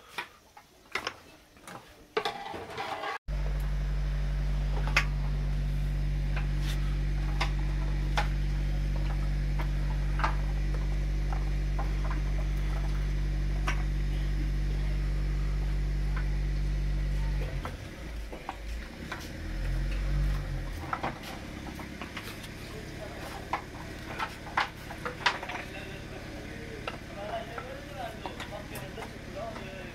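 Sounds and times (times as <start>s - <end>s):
steady low hum: 3.3s - 29.9s
clicks and knocks on clay pots: 17.4s - 29.9s.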